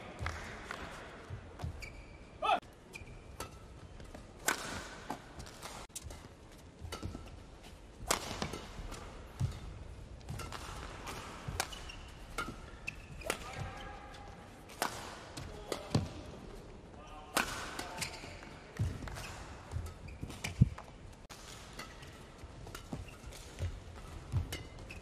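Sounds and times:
shoes squeaking on court: 1.5 - 4.5, 5.1 - 14.2, 17.9 - 21.2, 22.0 - 25.0
rackets hitting shuttlecock: 2.5 - 16.3, 17.3 - 25.0.

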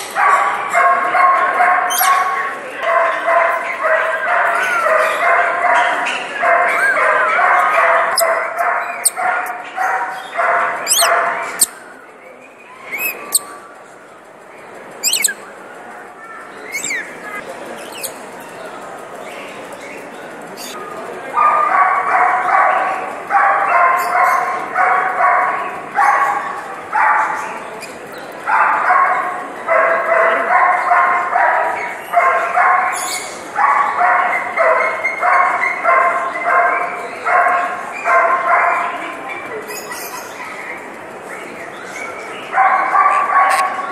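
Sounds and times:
bark-like yaps: 0.2 - 2.4, 3.0 - 11.7, 15.0 - 15.4, 42.6 - 43.8
high-pitched bird chirps: 10.9 - 11.8, 12.9 - 13.6, 15.0 - 15.4, 16.7 - 18.2
short sharp animal calls: 15.0 - 15.4.

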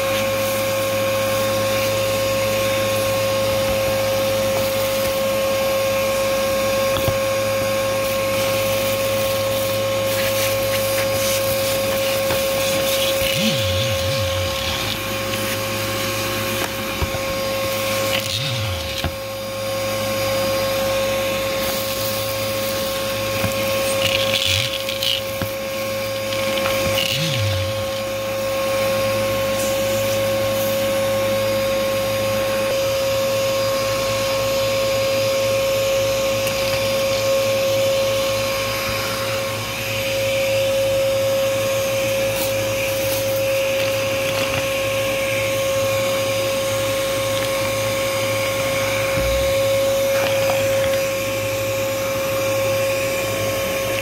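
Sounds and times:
vacuum cleaner whining: 0.0 - 54.0
debris rattling in hose: 6.6 - 30.8, 42.0 - 54.0.

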